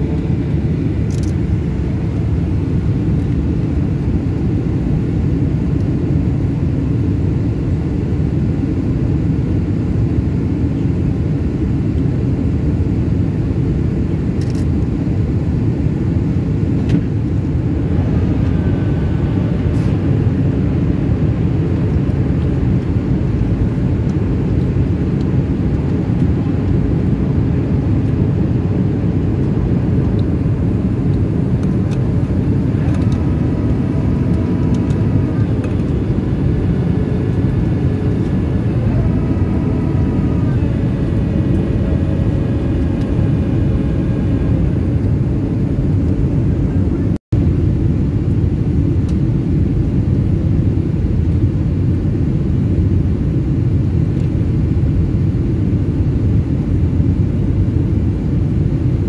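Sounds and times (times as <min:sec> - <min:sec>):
jet engine cabin rumble: 0:00.0 - 0:59.0
faint whining tones: 0:16.9 - 0:47.2.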